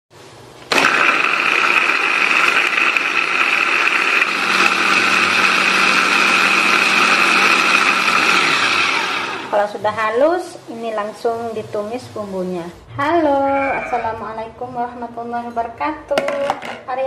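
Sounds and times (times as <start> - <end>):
electric food chopper whining: 0.7 - 9.8.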